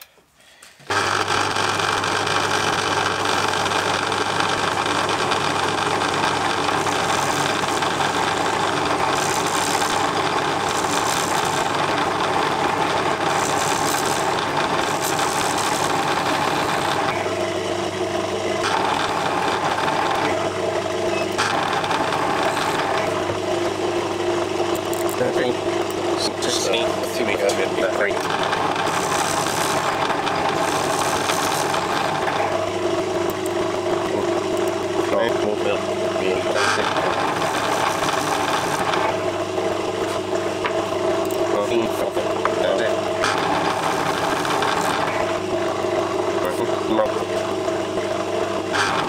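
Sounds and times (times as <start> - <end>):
cutting tool turning metal: 0.9 - 49.0
lathe motor humming: 0.9 - 49.0.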